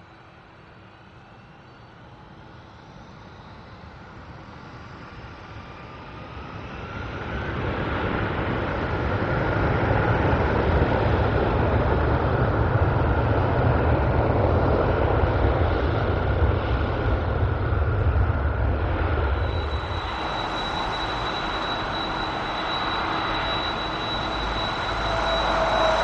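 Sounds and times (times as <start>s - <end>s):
jet engines rumbling: 8.4s - 26.0s
faint rising whine: 18.6s - 26.0s.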